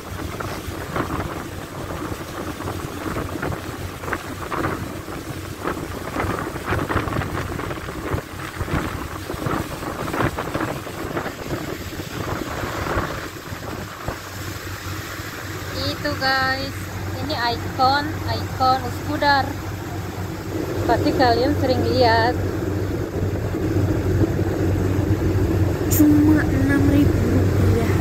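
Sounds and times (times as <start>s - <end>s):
ferry engine humming: 0.0s - 28.0s
wind buffeting microphone: 0.0s - 28.0s.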